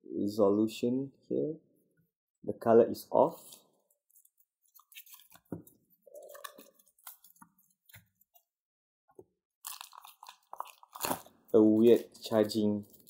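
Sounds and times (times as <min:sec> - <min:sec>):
packaging rustling: 0:03.9 - 0:08.4, 0:09.6 - 0:13.0.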